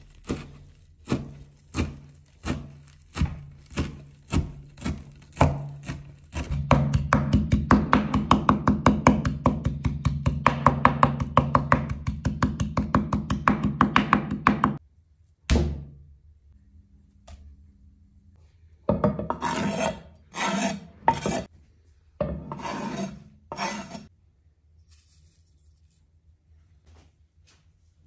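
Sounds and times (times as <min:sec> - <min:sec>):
knife chopping on wooden board: 0:00.1 - 0:14.8, 0:18.9 - 0:21.5.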